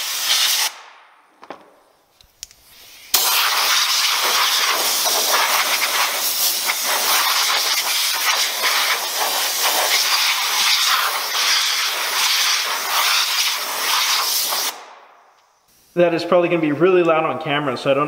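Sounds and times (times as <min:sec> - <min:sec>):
compressed air nozzle hissing: 0:00.0 - 0:00.8, 0:02.6 - 0:14.8, 0:15.5 - 0:16.0.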